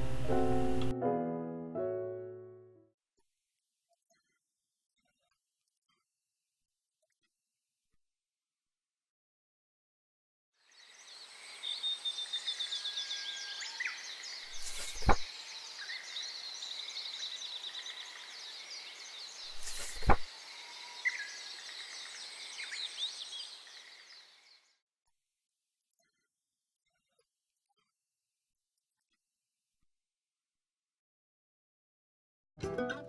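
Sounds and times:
small birds chirping: 10.6 - 24.8
insects hissing: 10.7 - 24.2.

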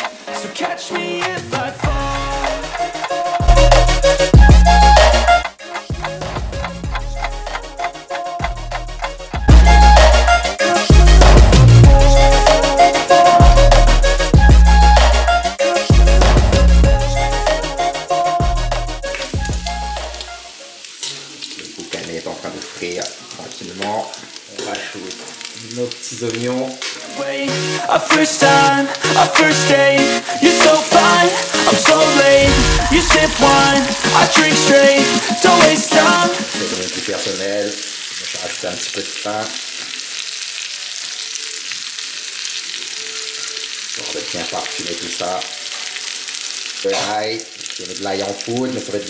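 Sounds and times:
pork sizzling in a pot: 19.1 - 29.5, 30.2 - 49.0.

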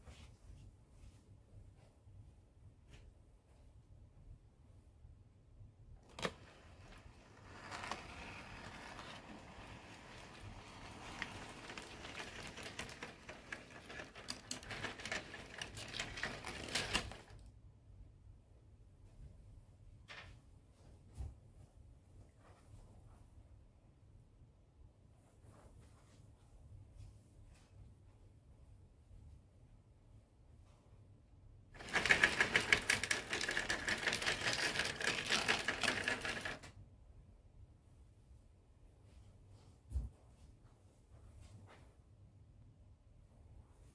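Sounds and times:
model train wheels clicking: 6.1 - 17.3, 31.8 - 36.7.

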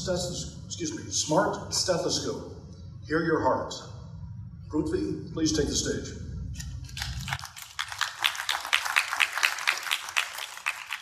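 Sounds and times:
audience applauding: 7.1 - 11.0.

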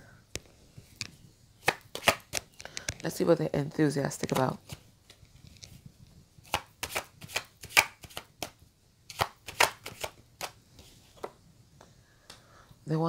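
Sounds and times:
cards being shuffled: 1.6 - 2.6, 4.2 - 5.8, 6.4 - 11.3.

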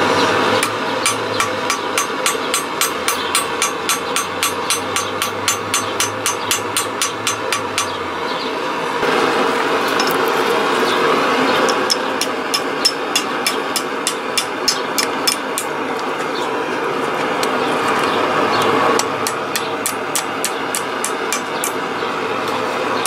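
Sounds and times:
hammer ringing on anvil: 0.6 - 8.0, 11.9 - 15.7, 19.2 - 21.8.

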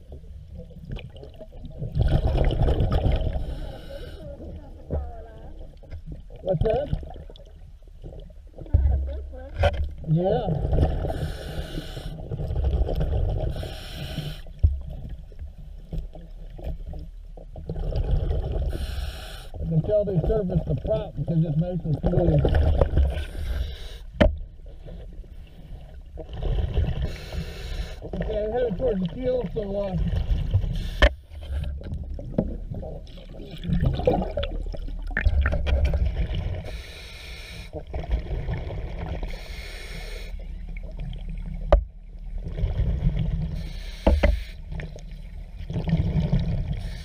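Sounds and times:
bubbling and gurgling: 0.0 - 11.4, 12.1 - 13.8, 16.2 - 18.9, 19.6 - 23.4, 25.8 - 27.3, 28.0 - 31.0, 31.6 - 36.9, 37.7 - 39.5, 40.4 - 43.6, 44.7 - 47.0
low underwater rumble: 0.0 - 19.0, 19.6 - 36.9, 37.6 - 39.6, 40.4 - 47.0
diver breathing through regulator: 3.2 - 4.3, 11.0 - 12.3, 13.5 - 14.6, 18.7 - 19.6, 23.1 - 24.2, 26.6 - 28.1, 30.7 - 31.3, 36.6 - 37.8, 39.2 - 40.5, 43.5 - 44.8, 46.7 - 47.0.

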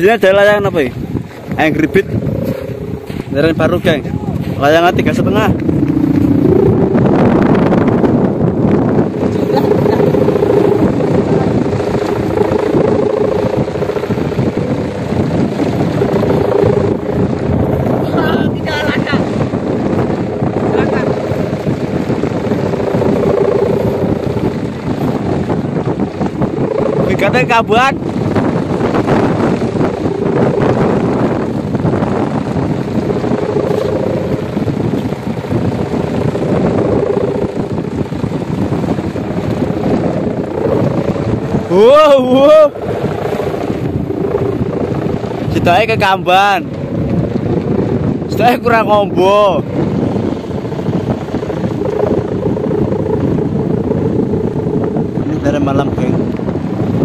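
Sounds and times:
kite hummer droning: 0.0 - 57.0.

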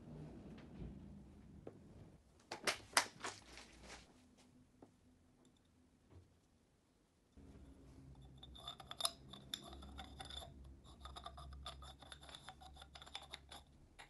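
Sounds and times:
metal puzzle clicks and scrapes: 8.2 - 14.0.

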